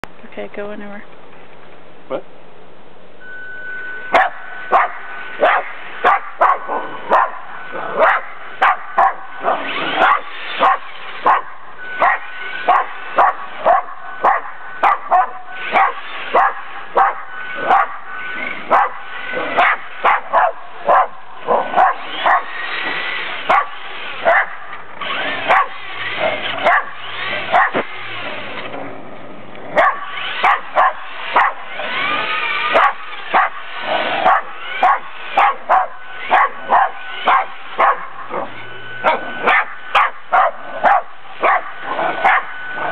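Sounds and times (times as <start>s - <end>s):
dog barking excitedly: 4.2s - 7.4s, 8.0s - 18.0s, 18.7s - 19.0s, 19.6s - 22.5s, 23.5s - 24.6s, 25.4s - 25.8s, 26.6s - 27.8s, 29.8s - 32.0s, 32.7s - 33.6s, 34.2s - 42.6s.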